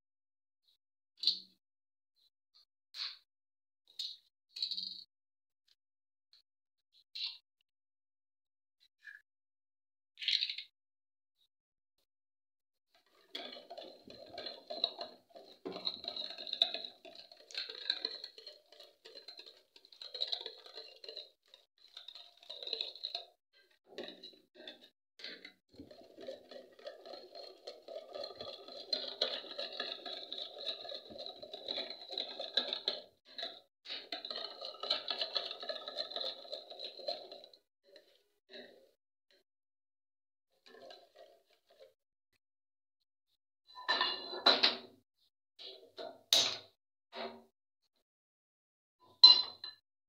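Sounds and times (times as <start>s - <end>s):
whisk beating eggs in a bowl: 13.0s - 38.8s, 40.6s - 42.0s.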